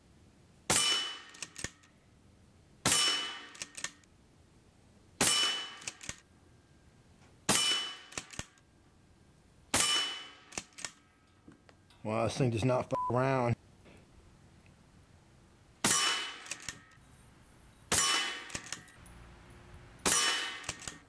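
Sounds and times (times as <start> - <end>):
air rifle shots: 0.7 - 1.8, 2.8 - 4.0, 5.2 - 6.2, 7.5 - 8.5, 9.7 - 11.0, 15.8 - 16.9, 17.9 - 18.9, 20.0 - 21.0.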